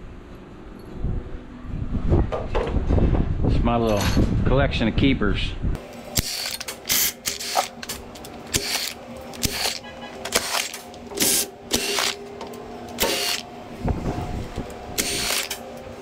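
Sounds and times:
power ratchet bursts: 6.2s - 12.2s, 13.0s - 13.5s, 15.0s - 15.6s.

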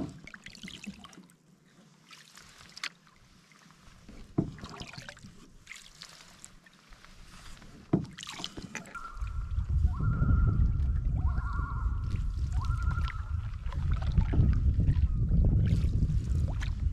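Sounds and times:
paddle swishes in water: 0.0s - 16.9s
low rumble: 9.0s - 16.9s.

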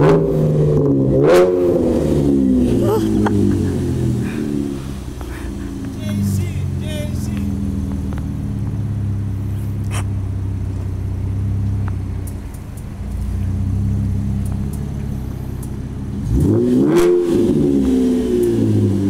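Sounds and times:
car engine idling and revving: 0.0s - 19.0s.

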